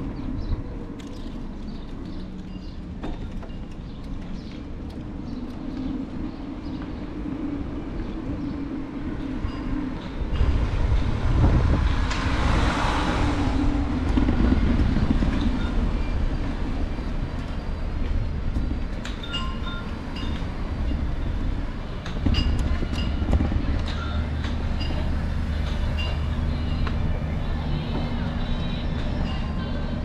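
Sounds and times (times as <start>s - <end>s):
wind on microphone: 4.1s - 30.0s
car passing: 10.6s - 15.5s.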